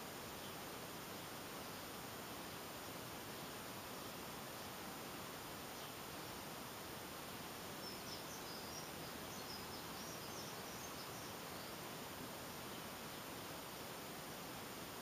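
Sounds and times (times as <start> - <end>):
steady hiss: 0.0 - 15.0
small bird chirping: 7.7 - 11.9.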